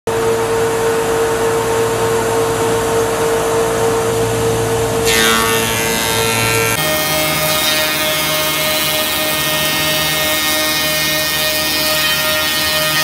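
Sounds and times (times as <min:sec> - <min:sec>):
planer cutterheads whining: 0:05.0 - 0:13.0
wood planer humming: 0:05.0 - 0:13.0.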